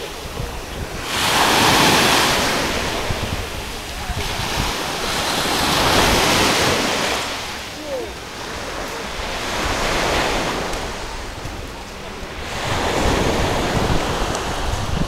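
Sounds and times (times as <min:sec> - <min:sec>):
surf breaking on pebble beach: 0:00.0 - 0:07.6
wind buffeting microphone: 0:00.0 - 0:15.0.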